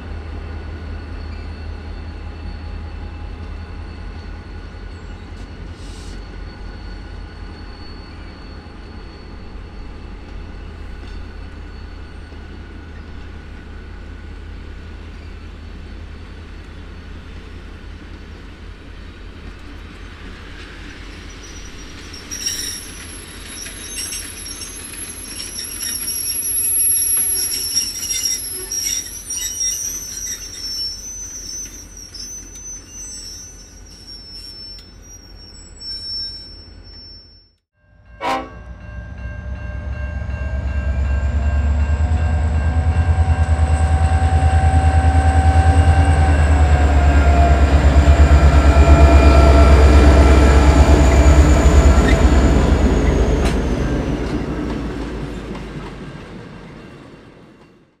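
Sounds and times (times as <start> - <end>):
train wheels squealing on rails: 0.0 - 58.0
diesel locomotive engine rumble: 38.0 - 57.6.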